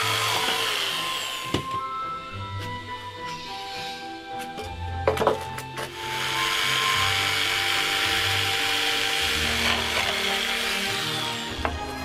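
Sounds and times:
jigsaw cutting wood: 0.0s - 1.7s, 5.9s - 12.0s
wooden knocks: 5.0s - 5.7s.

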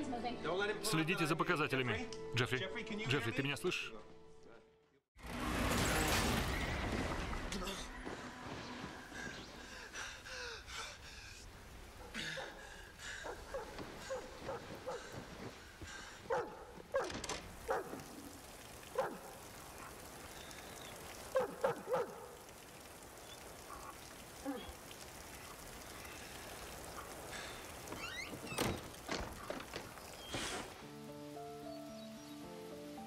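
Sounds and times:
steady rain: 5.2s - 33.0s
dog barking: 11.9s - 12.6s, 13.2s - 15.2s, 16.2s - 18.1s, 18.9s - 20.0s, 21.3s - 22.4s.

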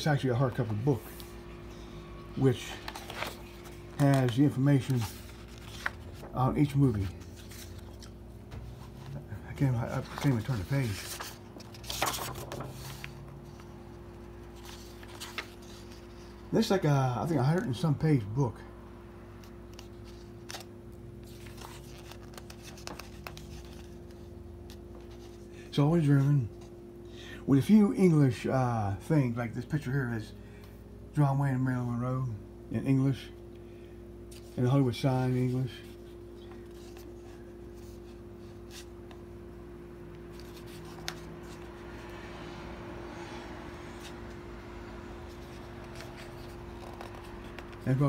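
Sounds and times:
book pages rustling: 0.0s - 16.8s, 19.4s - 26.8s, 34.3s - 39.3s, 40.1s - 42.2s, 43.7s - 48.0s
steady low hum: 0.0s - 48.0s.

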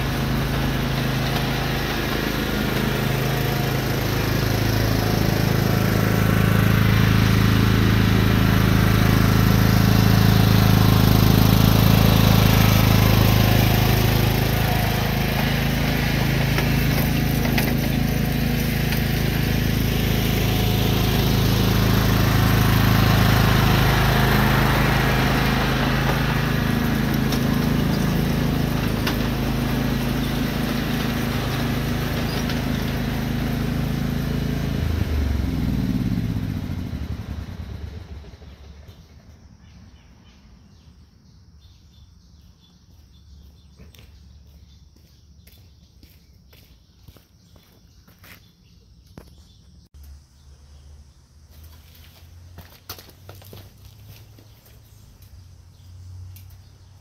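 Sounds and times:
lawn tractor engine running: 0.0s - 40.0s.

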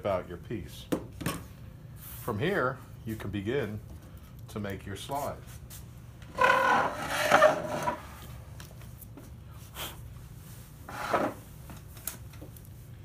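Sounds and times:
wood creaking and rubbing on wood: 6.2s - 8.1s.

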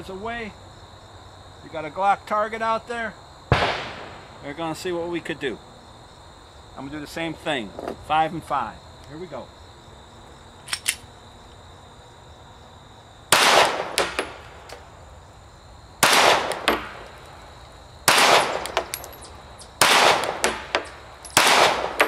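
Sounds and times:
pistol shots: 3.5s - 4.3s, 13.3s - 14.6s, 16.0s - 17.1s, 18.0s - 22.0s
metallic clinks: 18.5s - 19.8s, 20.4s - 21.4s.

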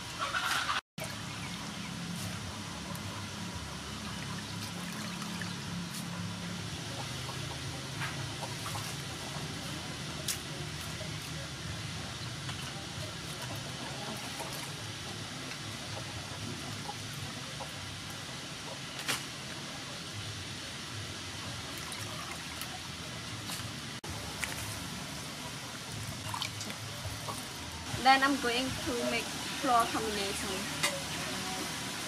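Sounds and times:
water splashing in a steel bowl: 25.9s - 27.6s.

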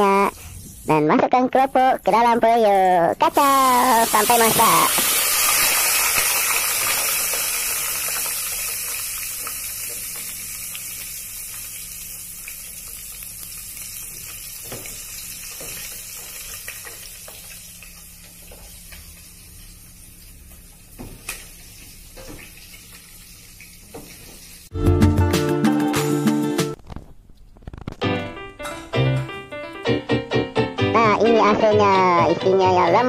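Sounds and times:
food sizzling in hot oil: 0.0s - 2.4s, 3.3s - 24.7s.

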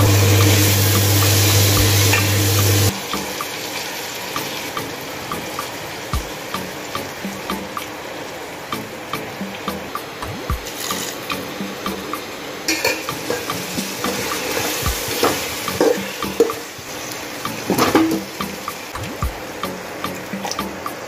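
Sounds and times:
spoon clinking against pot: 12.7s - 16.6s.

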